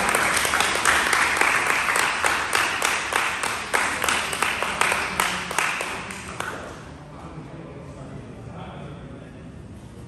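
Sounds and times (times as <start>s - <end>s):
people clapping: 0.0s - 6.9s.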